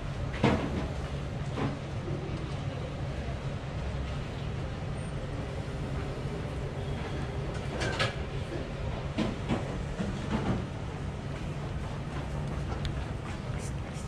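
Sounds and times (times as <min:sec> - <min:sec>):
short knocks and clacks: 0:09.1 - 0:10.7.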